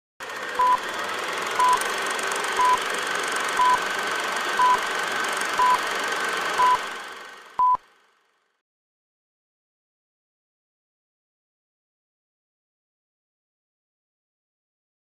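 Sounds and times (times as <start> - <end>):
countdown beeps: 0.6 - 0.8, 1.6 - 1.8, 2.6 - 2.8, 3.6 - 3.8, 4.6 - 4.8, 5.6 - 5.8, 6.6 - 6.8, 7.6 - 7.8.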